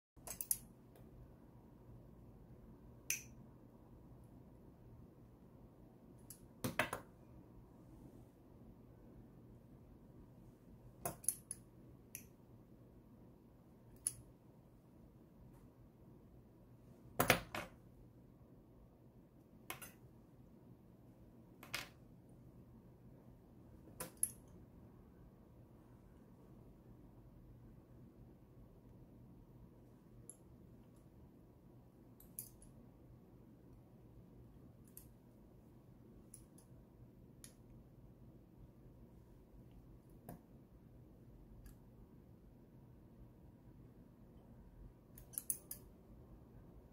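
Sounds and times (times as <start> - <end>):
metallic pliers clicks: 0.2 - 0.7, 3.1 - 3.4, 11.1 - 12.3, 13.9 - 14.2, 45.1 - 45.9.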